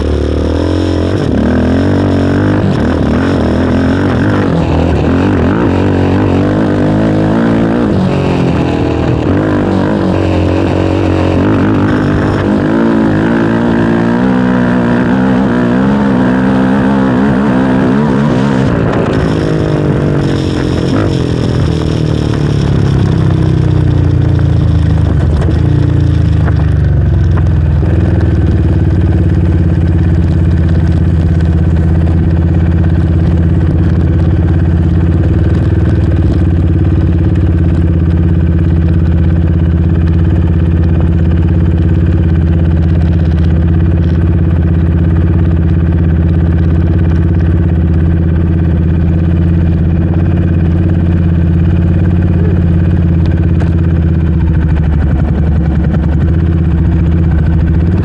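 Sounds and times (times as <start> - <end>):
engine idling: 20.2 - 58.0.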